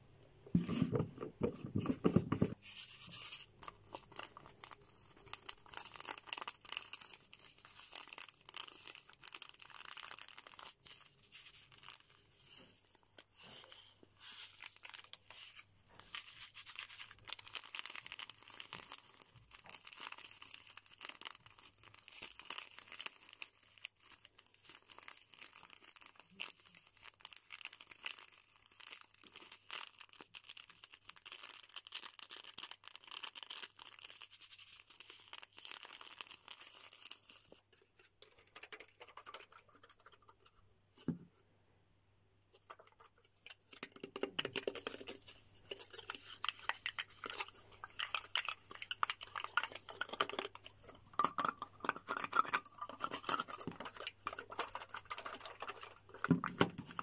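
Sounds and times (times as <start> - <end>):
plastic wrapper crinkling: 0.5 - 40.6, 42.6 - 57.0.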